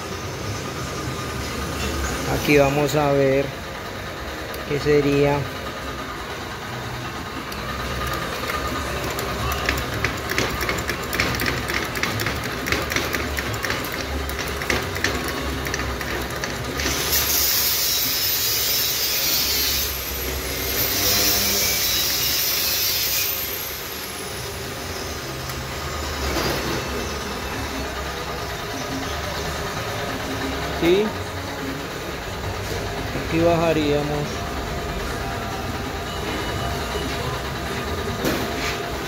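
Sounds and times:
metallic clicks and knocks: 7.5 - 16.6.

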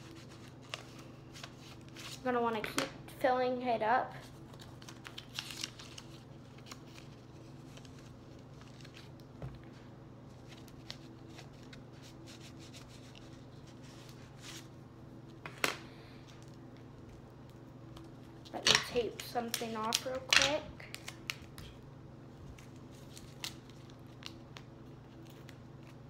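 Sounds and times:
paper rustling and rubbing: 0.0 - 2.3, 4.2 - 14.8
steady low hum: 0.0 - 26.0.

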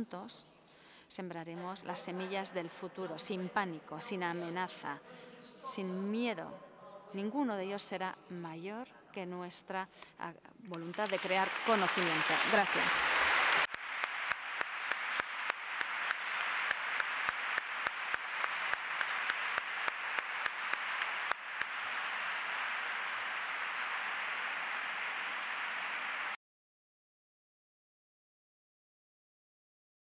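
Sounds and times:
audience applauding: 10.7 - 26.4
nearby hands clapping: 10.7 - 26.4.

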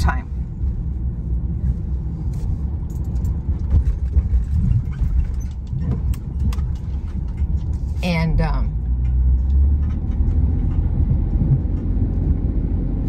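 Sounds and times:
van engine and tyre rumble: 0.0 - 13.0
knocks and rattles: 2.9 - 8.0, 8.8 - 13.0.

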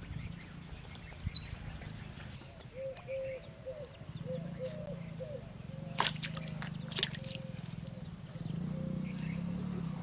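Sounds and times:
water splashing: 5.9 - 8.0.

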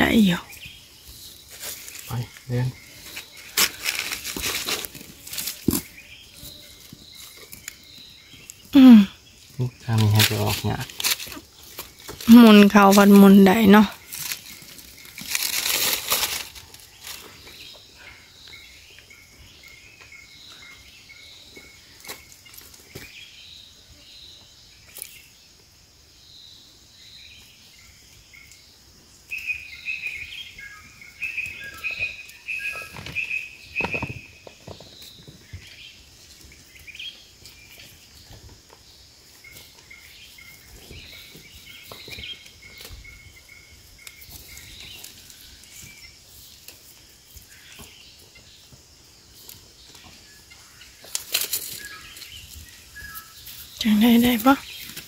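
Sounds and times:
high insect drone: 0.0 - 55.0.

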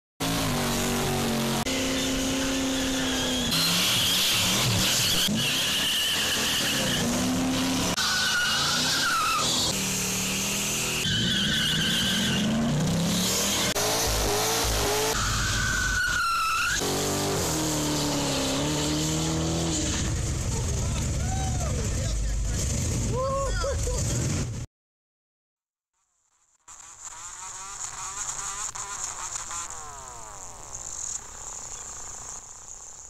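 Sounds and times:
car engines revving: 0.2 - 24.6, 26.7 - 33.0
tyres squealing on pavement: 1.9 - 9.8, 10.7 - 12.8, 14.8 - 18.6.

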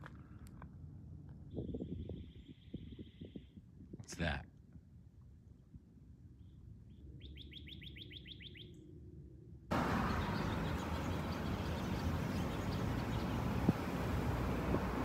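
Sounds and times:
songbird trilling: 7.2 - 8.8, 9.7 - 14.7
steady rushing outdoor noise: 9.7 - 15.0.

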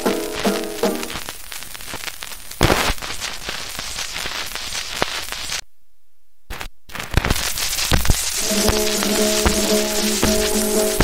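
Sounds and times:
record surface hiss and crackle: 0.0 - 11.0
loud record pop: 7.2 - 11.0.

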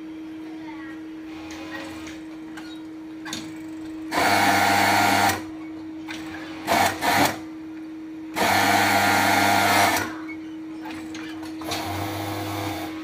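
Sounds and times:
steady hum: 0.0 - 13.0
overlock sewing machine stitching: 4.1 - 5.4, 6.4 - 7.4, 8.4 - 10.1, 11.6 - 13.0.

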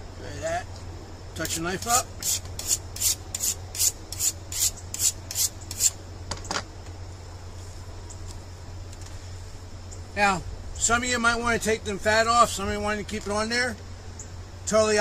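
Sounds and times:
knife scraping on sharpening steel: 1.9 - 6.0.

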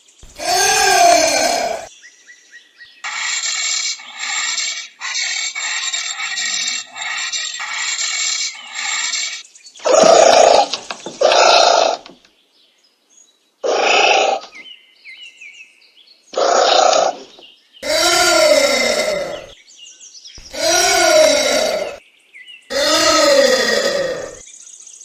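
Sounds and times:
anteater harsh calls: 0.2 - 1.9, 3.1 - 9.2, 13.6 - 14.4, 17.8 - 19.6, 20.4 - 22.0, 22.7 - 24.4.

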